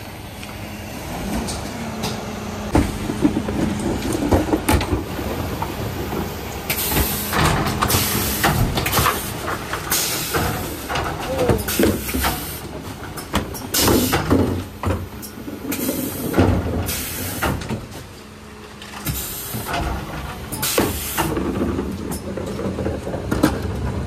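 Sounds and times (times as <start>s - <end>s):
truck engine humming: 0.0s - 24.0s
bins knocking and clattering: 1.3s - 18.1s, 18.9s - 24.0s
bin lifter rattling and hissing: 4.4s - 17.7s.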